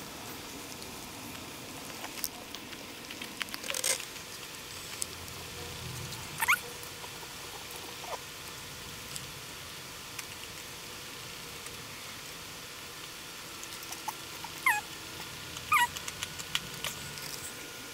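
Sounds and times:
dog chewing a treat: 0:00.6 - 0:05.1
dog whimpering: 0:06.4 - 0:06.7, 0:07.5 - 0:08.2, 0:13.9 - 0:14.9, 0:15.7 - 0:16.0.

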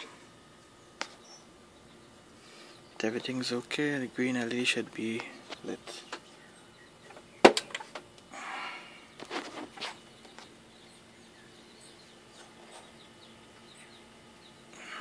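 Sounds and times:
faint steady hum: 0:00.0 - 0:15.0
handling noises: 0:09.2 - 0:10.5.

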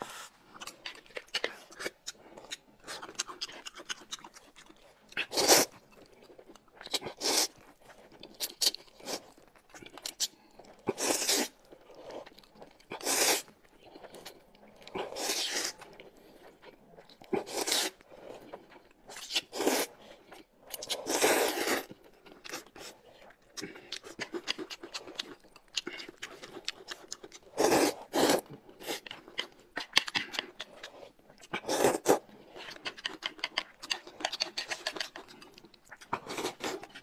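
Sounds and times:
quiet chewing: 0:00.0 - 0:37.0
loud slurping of noodles: 0:10.9 - 0:11.5, 0:13.0 - 0:13.5, 0:19.5 - 0:19.9, 0:21.0 - 0:21.9, 0:27.6 - 0:29.0.

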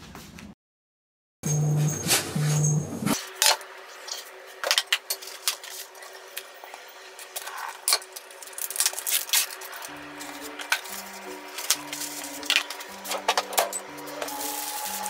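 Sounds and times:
cooking paper rustling and crinkling: 0:03.1 - 0:15.0.

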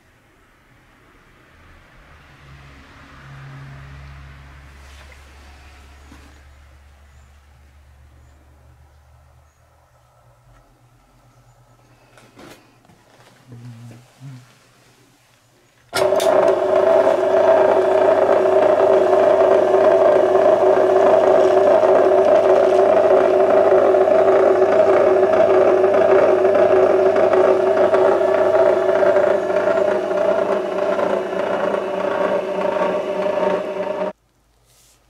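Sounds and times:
motor and rollers whirring: 0:15.9 - 0:34.1.

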